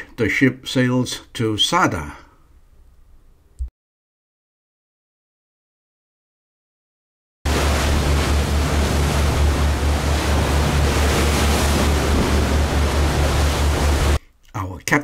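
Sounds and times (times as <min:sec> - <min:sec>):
pulsing low throb: 0:07.5 - 0:14.2
sea rushing along hull: 0:07.5 - 0:14.2
wind buffeting microphone: 0:07.5 - 0:14.2.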